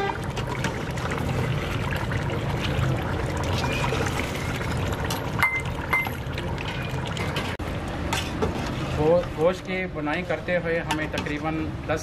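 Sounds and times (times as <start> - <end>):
meat sizzling and bubbling in gravy: 0.0 - 8.9.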